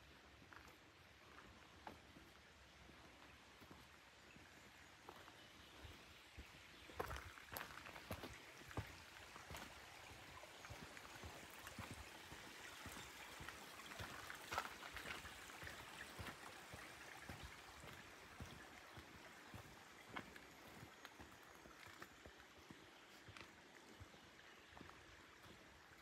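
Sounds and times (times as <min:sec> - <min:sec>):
running water hiss: 0:06.9 - 0:22.6.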